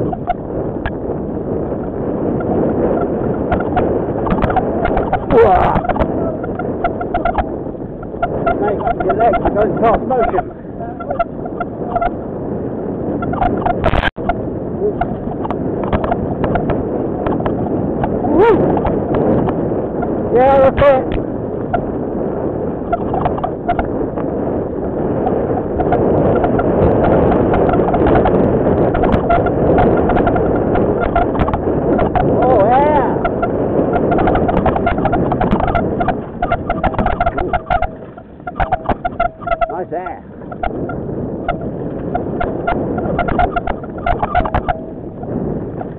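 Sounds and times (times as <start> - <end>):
steady whining tone: 0.0 - 22.2, 22.8 - 45.9
bike tyre rumble: 0.0 - 45.9
wind on microphone: 0.0 - 45.9
short pitched squeal: 2.9 - 12.2, 28.9 - 45.9.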